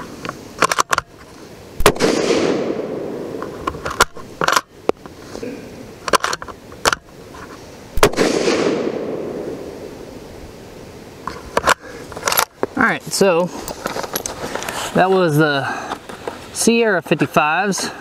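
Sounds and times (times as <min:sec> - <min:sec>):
rifle shots echoing: 0:01.8 - 0:03.4, 0:08.0 - 0:09.9.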